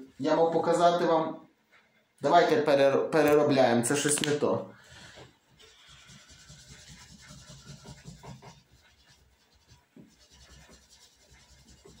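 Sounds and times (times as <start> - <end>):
pencil scratching on paper: 5.6 - 12.0.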